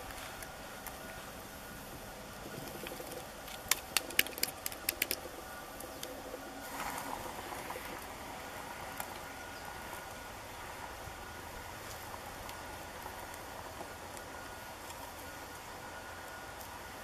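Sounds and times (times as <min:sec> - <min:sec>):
campfire crackling: 0:00.0 - 0:17.0.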